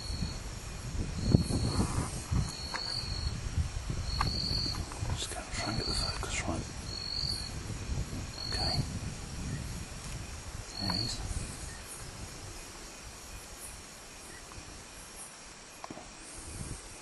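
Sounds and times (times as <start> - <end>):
insect trill: 0.0 - 17.0.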